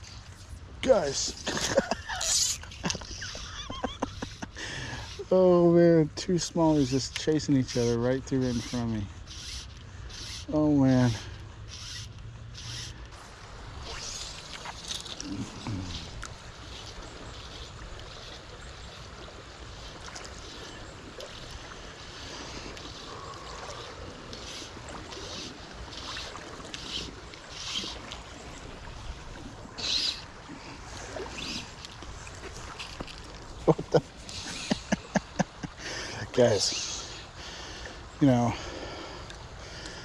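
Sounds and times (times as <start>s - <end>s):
creek water running: 0.0s - 40.0s
fly line swishing: 6.4s - 35.4s.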